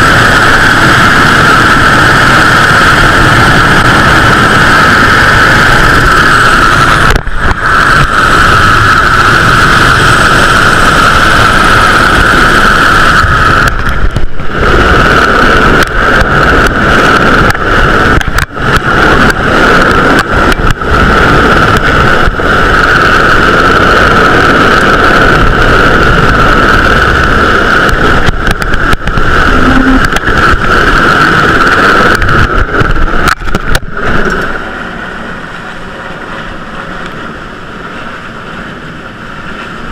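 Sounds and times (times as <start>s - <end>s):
helicopter turbine whine and rumble: 0.0s - 39.9s.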